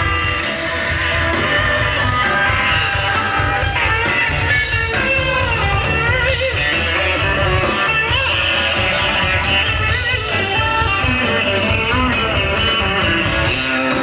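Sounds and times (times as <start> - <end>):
electric guitar bending notes: 0.0 - 14.0
live rock band playing: 0.0 - 14.0.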